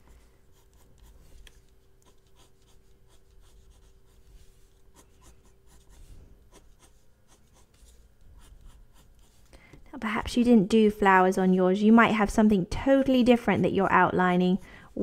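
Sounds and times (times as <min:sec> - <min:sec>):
pencil scratching on paper: 0:00.1 - 0:09.5.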